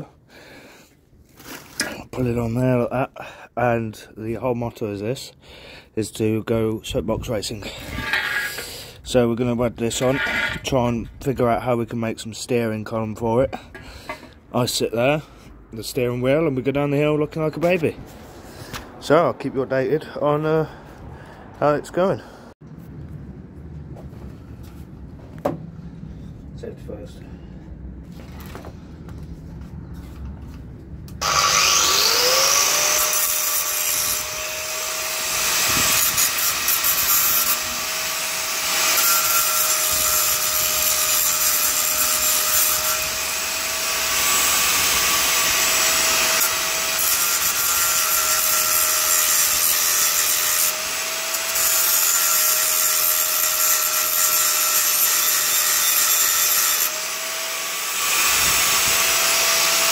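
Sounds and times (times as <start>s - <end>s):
power tool grinding metal: 7.7s - 8.8s, 9.9s - 10.7s, 31.2s - 59.9s.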